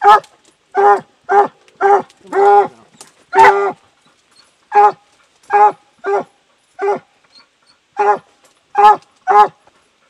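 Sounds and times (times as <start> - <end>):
dog barking: 0.0 - 0.2, 3.3 - 3.8, 4.7 - 7.0, 8.0 - 9.6.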